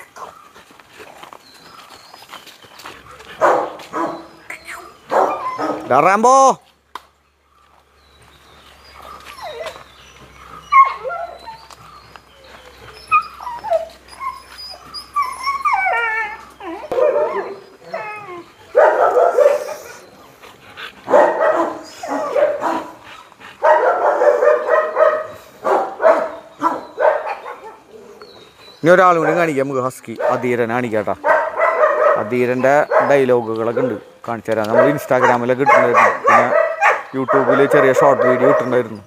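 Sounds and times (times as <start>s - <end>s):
dog whining: 3.1s - 6.0s, 8.9s - 20.3s
dog barking: 3.4s - 4.3s, 5.1s - 5.9s, 16.9s - 17.6s, 18.7s - 19.9s, 21.1s - 23.0s, 23.6s - 27.9s, 29.2s - 29.5s, 30.2s - 30.6s, 31.2s - 33.2s, 34.7s - 39.0s.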